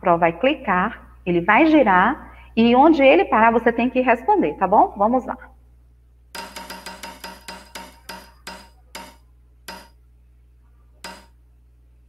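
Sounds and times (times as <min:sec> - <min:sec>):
spinning wheel ticking clicks: 0:06.4 - 0:10.0, 0:11.0 - 0:11.4.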